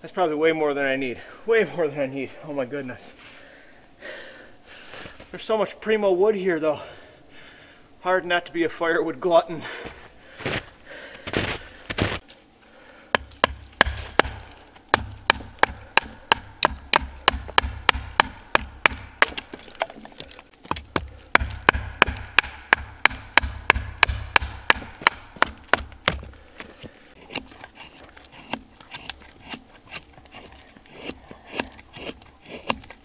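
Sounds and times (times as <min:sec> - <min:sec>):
knife batoned through wood knocks: 0:13.2 - 0:26.3.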